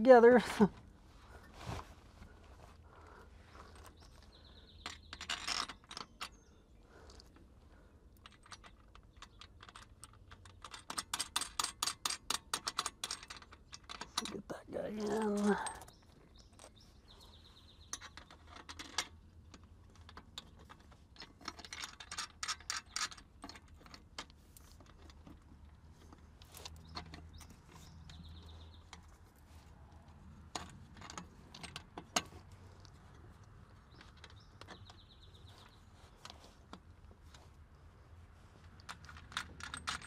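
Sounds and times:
light metallic clicks and clinks: 8.1s - 37.4s, 38.6s - 40.0s.

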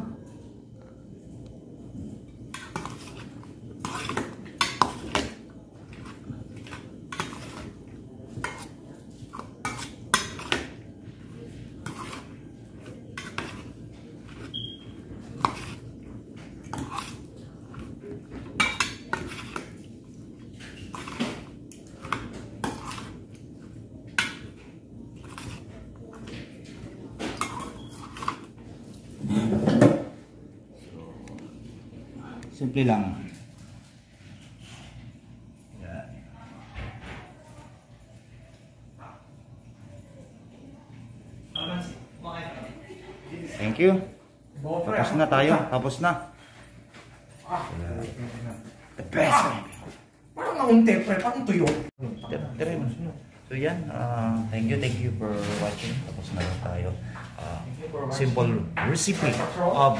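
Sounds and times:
spoons scraping metal pot: 11.8s - 12.4s, 13.2s - 15.9s, 16.6s - 17.9s, 22.0s - 23.2s.

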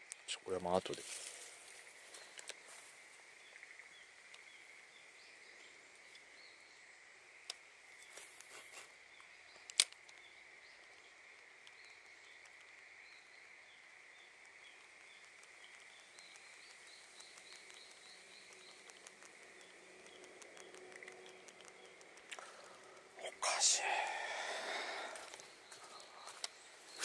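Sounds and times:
faint bird chirps: 7.9s - 27.0s.

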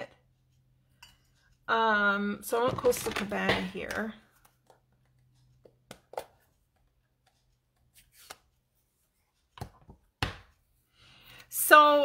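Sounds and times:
craft supplies knocking on desk: 2.6s - 4.1s.

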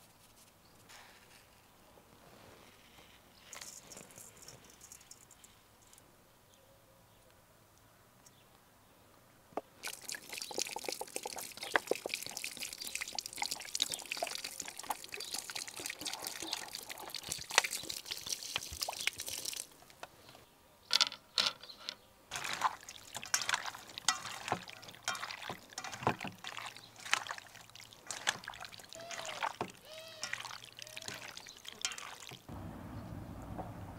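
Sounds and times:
hands kneading wet meat: 9.8s - 20.0s, 22.3s - 32.5s
water trickling into plastic bottle: 9.8s - 20.1s, 22.3s - 32.5s.

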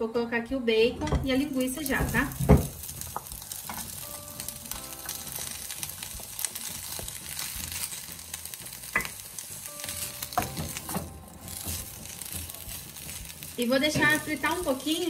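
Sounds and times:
wooden spoon knocking on pan: 1.0s - 4.0s, 10.3s - 12.5s, 13.8s - 14.9s
meat sizzling in a frying pan: 1.2s - 15.0s.

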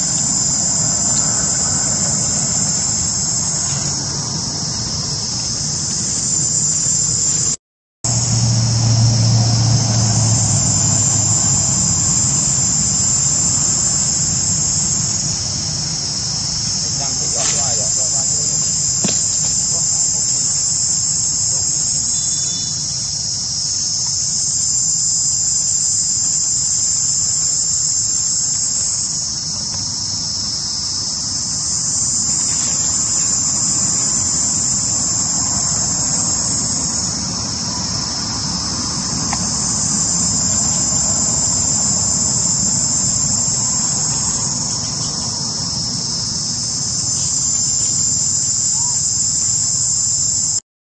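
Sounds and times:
insects shrilling: 0.0s - 8.4s, 10.0s - 50.6s.

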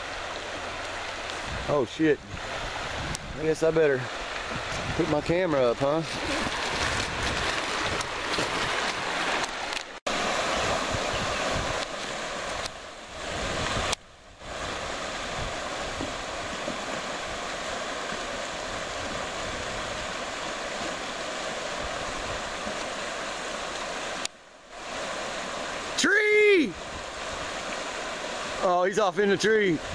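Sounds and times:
river rapids rushing: 0.0s - 29.9s.

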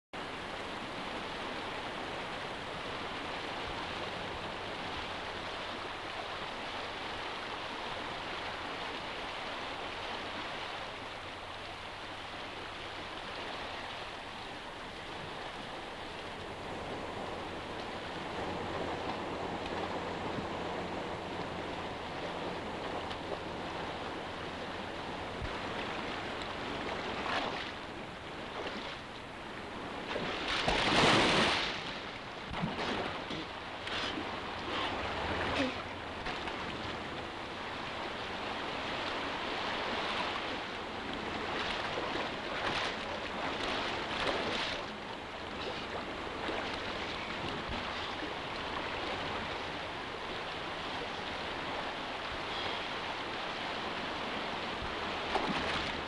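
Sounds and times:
fast-flowing river rushing: 0.2s - 56.0s
splashes in water: 30.1s - 31.9s.

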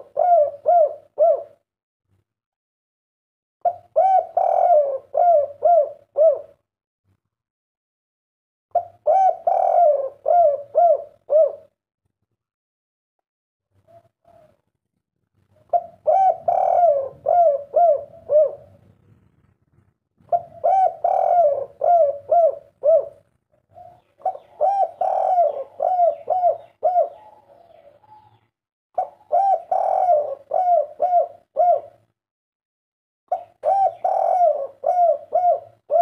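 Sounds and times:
dove cooing: 0.0s - 1.6s, 3.6s - 6.6s, 8.7s - 11.8s, 13.8s - 14.6s, 15.5s - 19.5s, 20.2s - 32.1s, 33.3s - 36.0s.

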